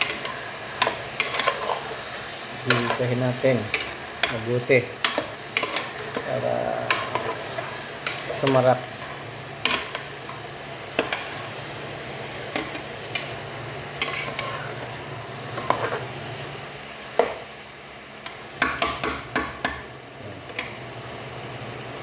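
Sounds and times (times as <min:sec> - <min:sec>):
metal spoon stirring in a pot: 0:00.0 - 0:11.5, 0:14.0 - 0:16.1.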